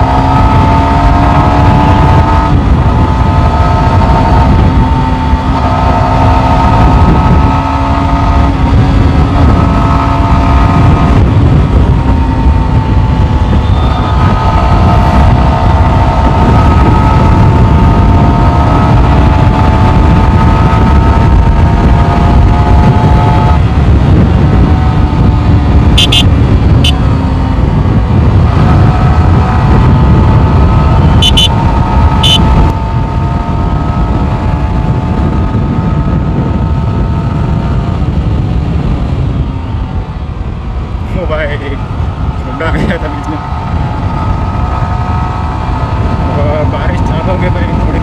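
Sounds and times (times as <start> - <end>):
motorcycle engine cruising: 0.0 - 48.0
wind rush on microphone: 0.0 - 48.0
short high beeps: 26.0 - 27.0, 31.2 - 31.5.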